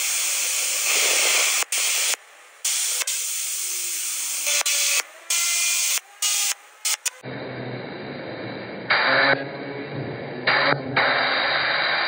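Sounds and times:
waterjet stream hissing: 0:00.0 - 0:06.5.

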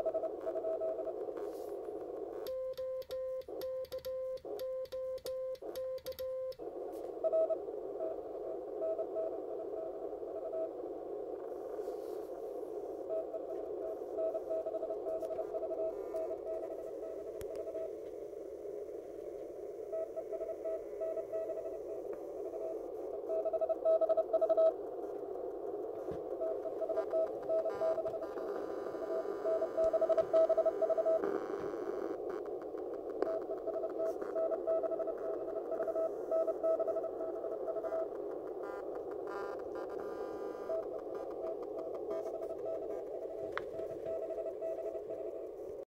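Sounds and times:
radio band noise hiss: 0:00.0 - 0:45.8
morse code tone: 0:13.1 - 0:18.0.

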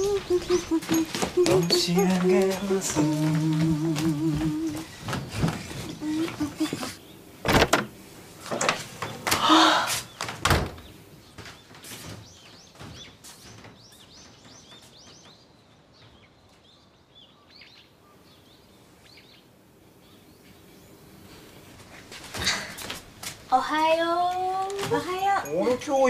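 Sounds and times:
small birds chirping: 0:00.0 - 0:07.4, 0:08.8 - 0:22.1
knocks and thuds on door: 0:07.4 - 0:07.9, 0:10.2 - 0:10.9.

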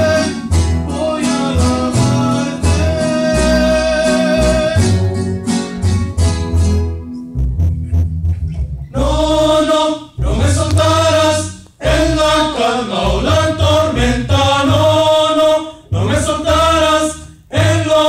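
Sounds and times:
men singing a hymn: 0:00.0 - 0:05.2, 0:09.0 - 0:18.0
acoustic guitars and double bass: 0:00.0 - 0:18.0.

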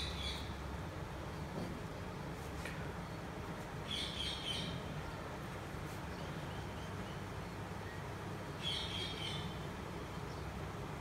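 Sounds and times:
low background hum: 0:00.0 - 0:11.0.

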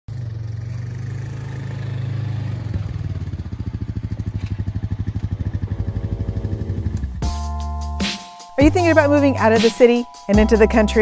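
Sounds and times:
quad engine running: 0:00.1 - 0:07.4.

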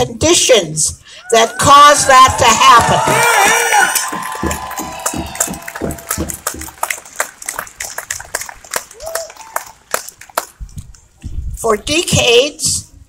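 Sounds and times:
shouts and whoops: 0:01.2 - 0:06.3, 0:08.9 - 0:09.8
crowd applauding: 0:02.1 - 0:10.6.

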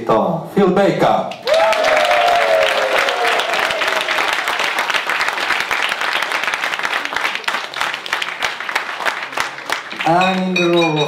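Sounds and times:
audience applauding: 0:01.4 - 0:11.0.

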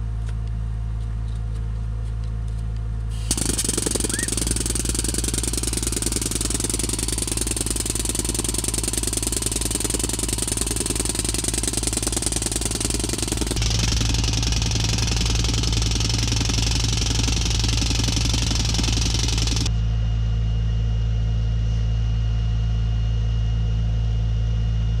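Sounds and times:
steady low hum: 0:00.0 - 0:25.0
pneumatic tamper hammering: 0:03.1 - 0:19.7.

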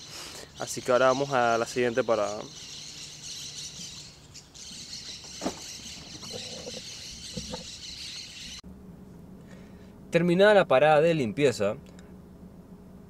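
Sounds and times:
bird chirps: 0:00.0 - 0:08.6
high-pitched insect chorus: 0:00.0 - 0:08.6.

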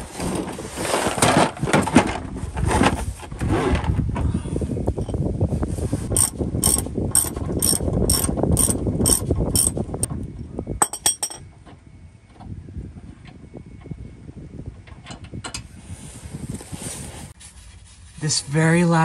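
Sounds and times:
socket ratchet clicking: 0:06.2 - 0:09.8.

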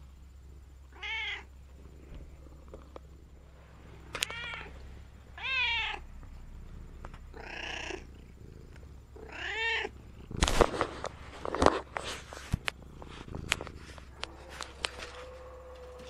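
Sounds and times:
cat meowing: 0:00.9 - 0:01.5, 0:04.1 - 0:04.8, 0:05.4 - 0:06.0, 0:07.4 - 0:08.1, 0:09.2 - 0:09.9.

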